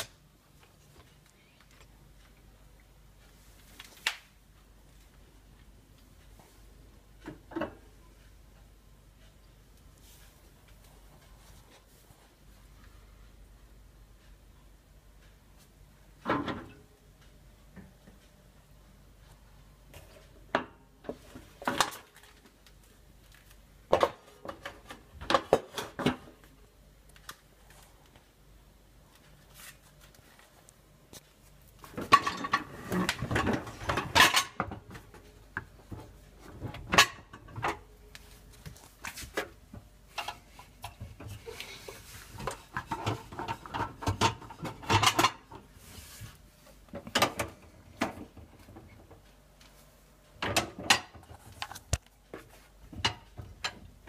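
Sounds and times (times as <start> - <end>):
dishes clattering in dishwasher racks: 16.2 - 16.8, 32.0 - 35.0, 36.5 - 37.9, 42.4 - 45.6, 50.4 - 51.2.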